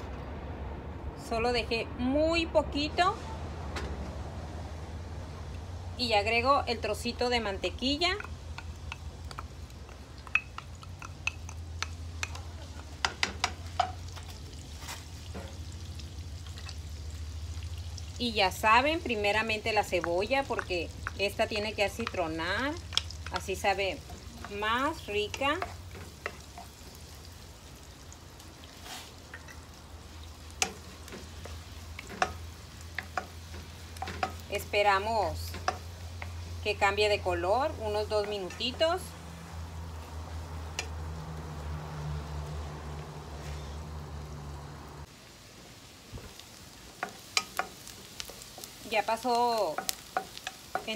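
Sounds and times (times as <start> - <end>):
butter sizzling in a frying pan: 6.9 - 41.7, 44.6 - 50.9
wooden spatula clicking on bowl: 8.2 - 12.4.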